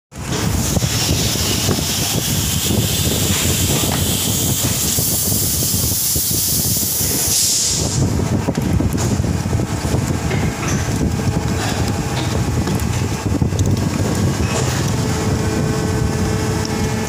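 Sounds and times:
low mechanical rumble: 0.2s - 17.0s
machine hissing: 0.3s - 8.3s.

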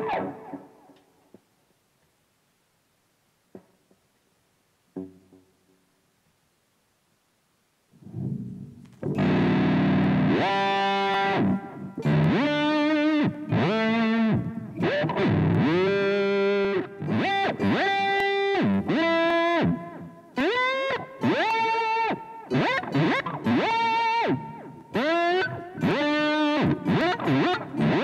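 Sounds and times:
distorted electric guitar bends: 0.0s - 1.0s, 8.0s - 28.0s.

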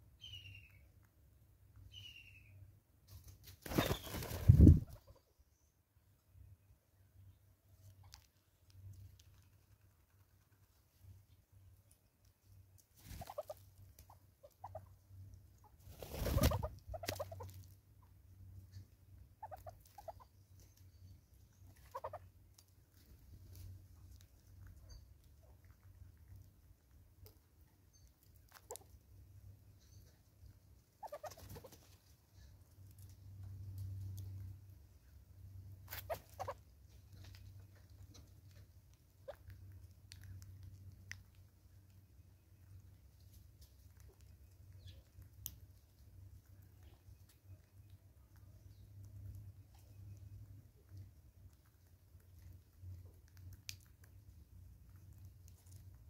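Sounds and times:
flurry of wingbeats: 3.2s - 5.0s, 15.8s - 17.3s.

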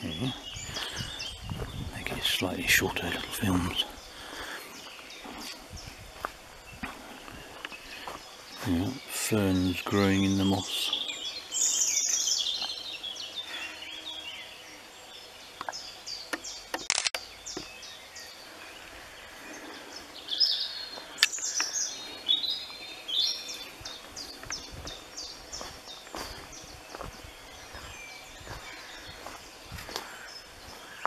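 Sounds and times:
birds chirping and trilling: 0.0s - 31.0s
sharp clicks: 15.6s - 17.2s.

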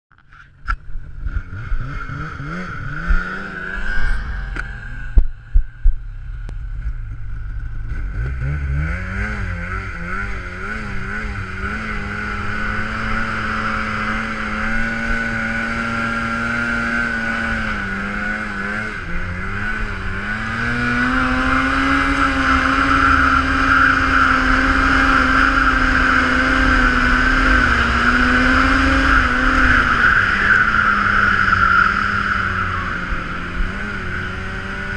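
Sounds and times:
steady high whine: 0.1s - 8.4s
snowmobile engine revving: 1.1s - 34.9s.

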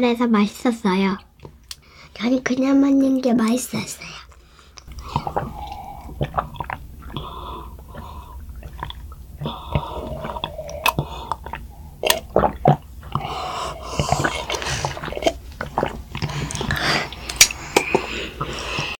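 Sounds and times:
children gulping drinks: 4.3s - 19.0s.

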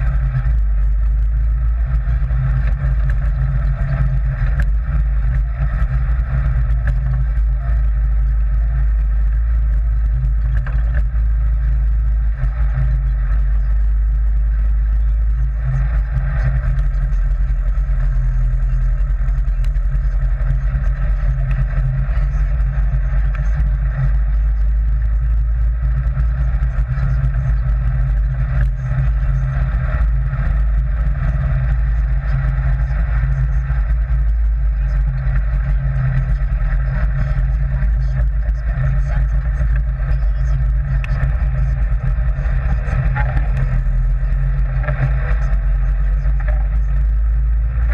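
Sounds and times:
dune buggy engine droning: 0.0s - 47.9s.

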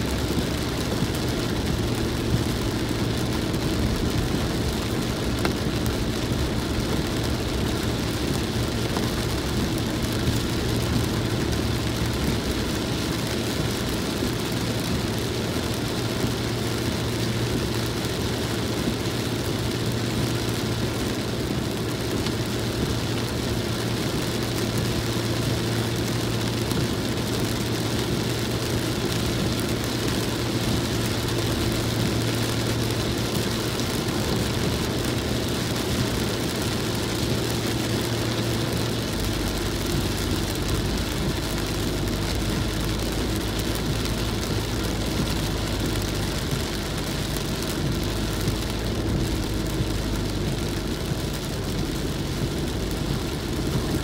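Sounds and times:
car engine hum: 0.0s - 54.0s
rain on windshield: 0.0s - 54.0s
tyres hissing on wet road: 0.0s - 54.0s.

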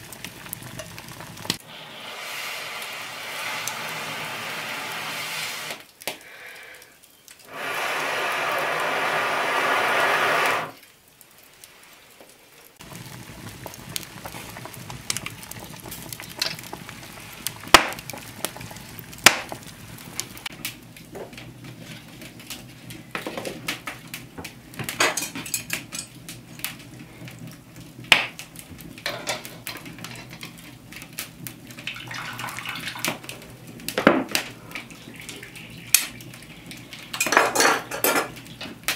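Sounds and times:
air blowing through tube: 1.6s - 5.8s, 7.4s - 10.8s
metal pot and utensils clinking: 25.0s - 26.2s, 29.0s - 30.4s, 37.1s - 38.4s.

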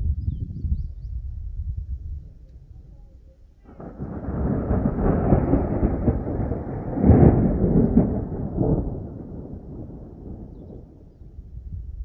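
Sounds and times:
rolling thunder: 3.6s - 12.0s.

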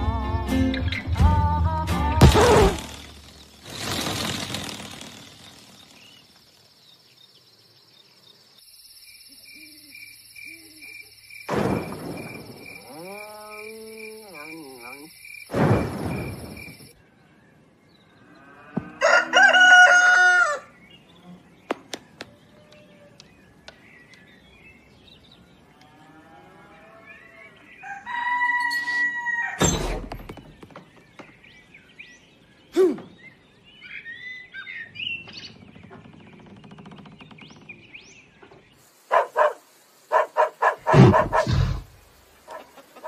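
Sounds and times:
rooster crowing: 18.7s - 20.7s, 27.8s - 29.6s.

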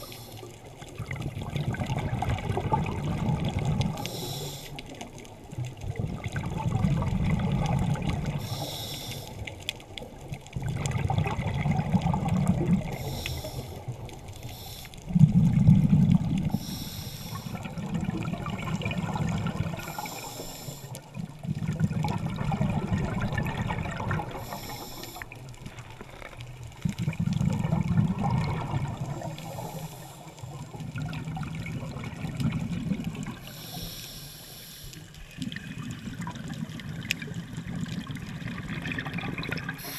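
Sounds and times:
regulator hiss on inhale: 0.0s - 0.6s, 3.9s - 5.0s, 8.3s - 9.6s, 12.9s - 15.3s, 16.4s - 17.7s, 19.7s - 21.1s, 24.3s - 25.5s, 29.2s - 30.6s, 33.4s - 35.3s
exhaled bubbles rumbling: 0.0s - 4.2s, 4.8s - 8.6s, 9.4s - 14.4s, 15.0s - 33.6s, 35.2s - 39.9s.

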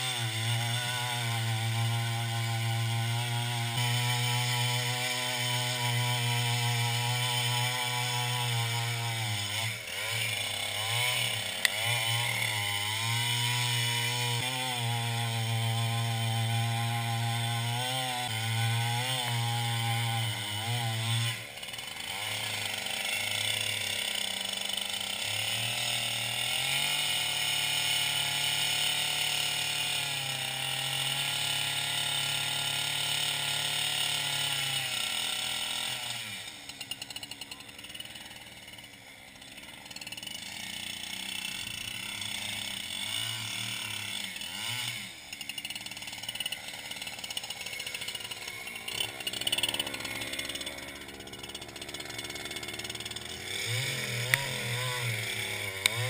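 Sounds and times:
chainsaw cutting ice: 0.0s - 56.0s
ice chisel chipping ice: 41.6s - 56.0s.

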